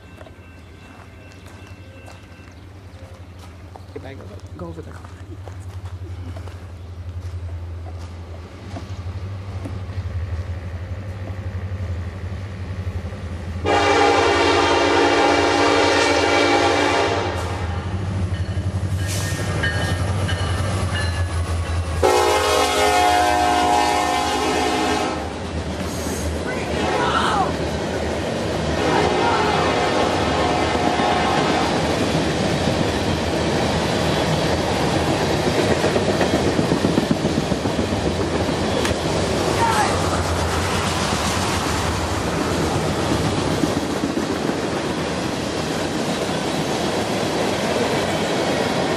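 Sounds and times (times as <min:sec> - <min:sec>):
train wheels rumbling on rail: 0:00.0 - 0:48.9
locomotive air horn: 0:13.6 - 0:17.6, 0:22.0 - 0:25.3, 0:28.8 - 0:31.6
wheels clacking over rail joints: 0:18.2 - 0:22.0, 0:31.9 - 0:48.9.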